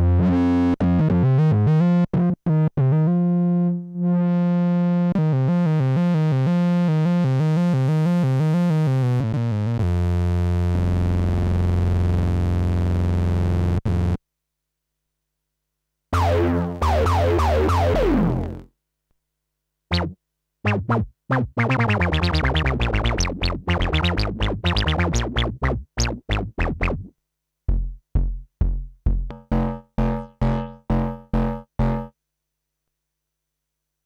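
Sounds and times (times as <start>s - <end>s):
synthesizer bass notes: 16.2s - 18.7s, 19.9s - 27.1s, 27.7s - 32.1s.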